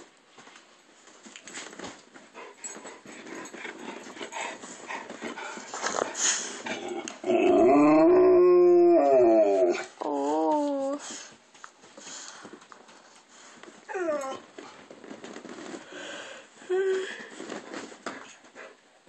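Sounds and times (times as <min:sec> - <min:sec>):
rustling and scuffling: 0:00.0 - 0:07.3, 0:09.0 - 0:18.9
dog howling: 0:07.2 - 0:10.9.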